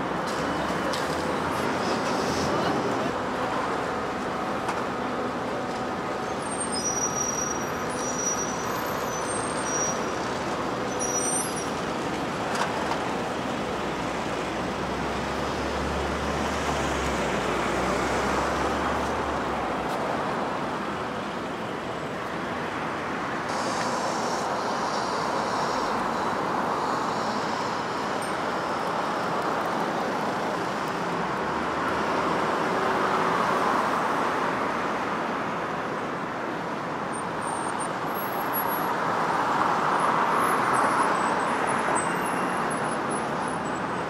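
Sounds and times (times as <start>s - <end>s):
heavy vehicle rumble: 0.0s - 33.0s
cars and buses passing: 0.0s - 44.0s.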